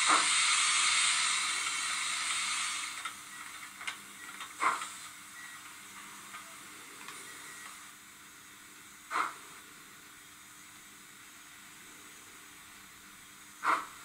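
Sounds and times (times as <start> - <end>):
model locomotive steam hiss: 0.0 - 3.7, 4.5 - 5.3, 9.1 - 9.5
short steam puffs: 0.0 - 5.6, 9.1 - 9.6.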